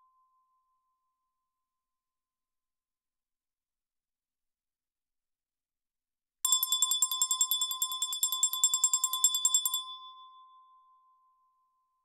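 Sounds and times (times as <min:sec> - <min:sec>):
small bell ringing rapidly: 0:06.5 - 0:10.0.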